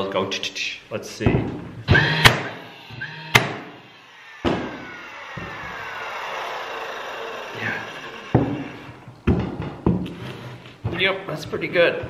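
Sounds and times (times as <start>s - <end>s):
nailer motor whirring: 1.8s - 9.3s
nail gun firing: 1.9s - 2.7s, 3.3s - 3.8s, 4.4s - 4.8s.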